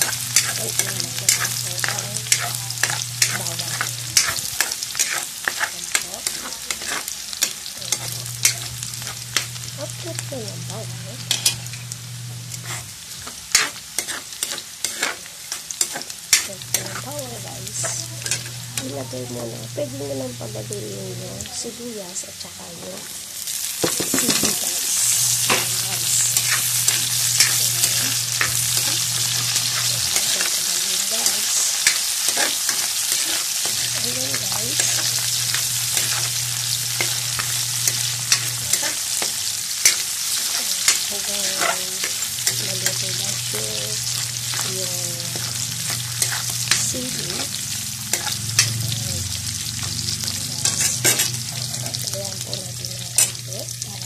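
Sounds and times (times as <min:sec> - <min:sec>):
metal spatula scraping a wok: 0:00.0 - 0:09.6, 0:12.5 - 0:18.9, 0:23.8 - 0:48.7, 0:49.8 - 0:52.6
food sizzling in hot oil: 0:00.0 - 0:54.0.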